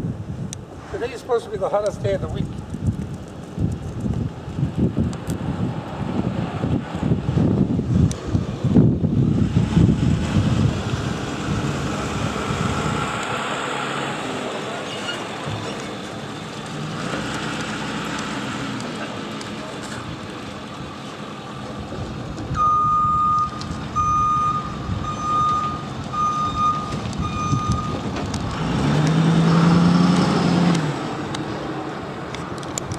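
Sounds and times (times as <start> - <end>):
reversing alarm beeping: 22.6 - 28.1.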